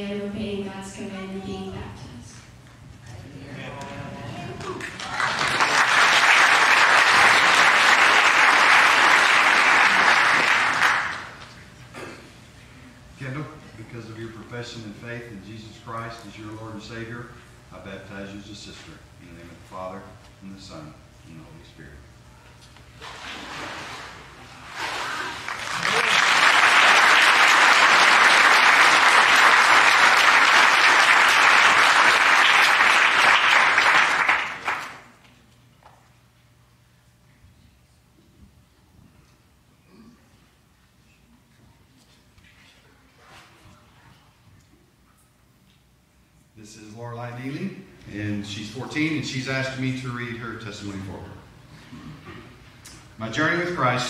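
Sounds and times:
congregation applauding: 4.5 - 11.6, 24.9 - 35.2.

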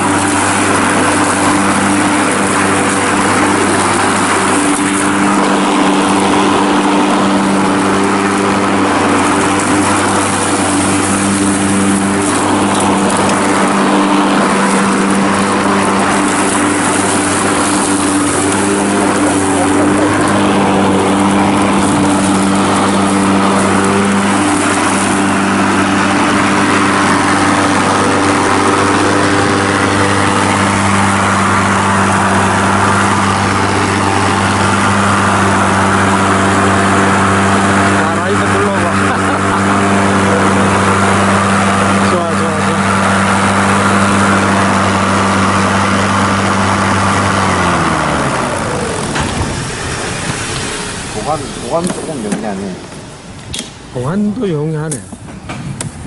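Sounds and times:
electric lawn mower cutting grass: 0.0 - 55.1.

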